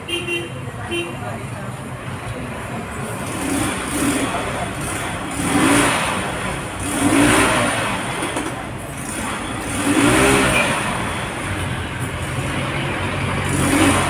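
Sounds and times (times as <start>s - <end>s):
traffic din: 0.0s - 14.0s
vehicle engines revving and passing: 0.0s - 14.0s.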